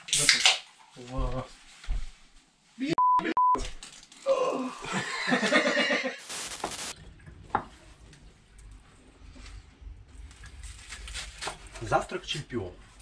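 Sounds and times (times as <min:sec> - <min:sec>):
burst of hiss: 0:06.2 - 0:07.0.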